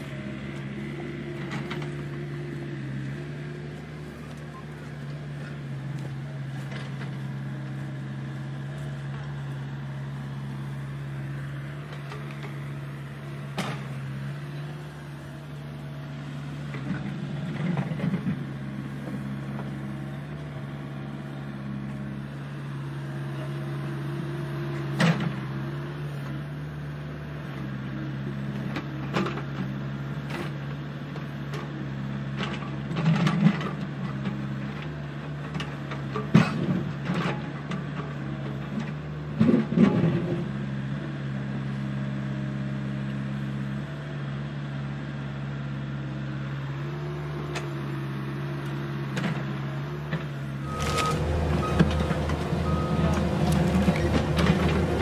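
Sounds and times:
metal bucket digging soil: 50.6s - 55.0s
toy excavator motors whining: 50.6s - 55.0s.

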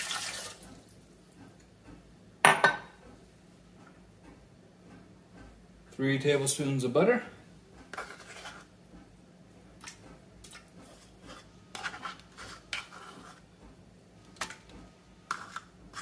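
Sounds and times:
plastic spoon scraping butter: 7.9s - 8.7s, 10.8s - 13.5s, 15.2s - 16.0s.

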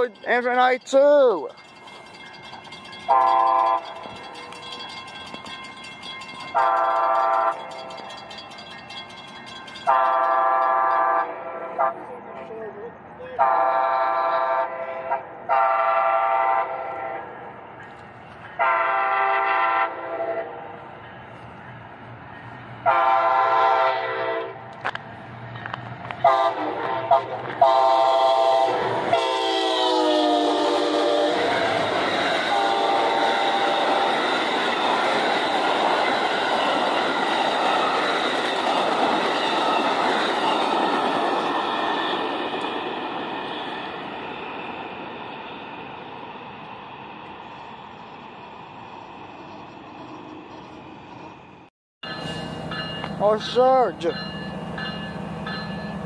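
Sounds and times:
train wheels rolling on rails: 0.0s - 13.2s, 24.3s - 56.0s
locomotive horn blasts: 3.1s - 3.9s, 6.6s - 7.6s, 9.9s - 12.1s, 13.4s - 17.3s, 18.6s - 20.6s, 22.8s - 24.6s, 26.2s - 31.8s, 32.5s - 34.0s.

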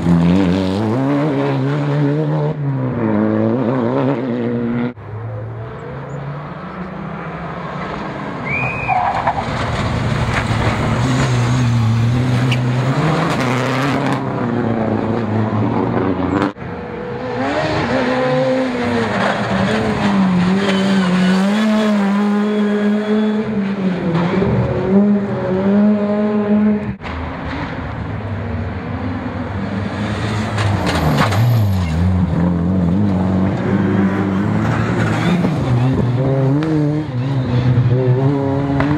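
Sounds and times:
rally car engines revving: 0.0s - 38.9s.

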